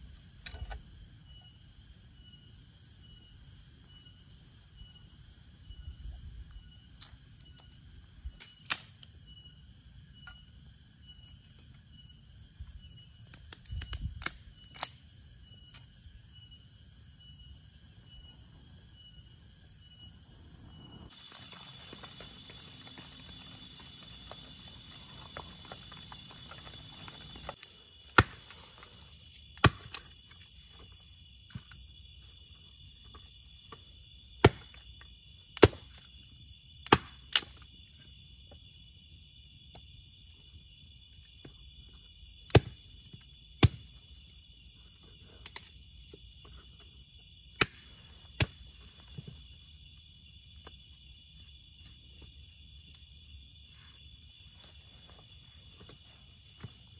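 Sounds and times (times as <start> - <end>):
crickets and night insects: 0.0 - 56.9
insect drone: 0.0 - 56.9
fire popping and cracking: 21.1 - 27.6.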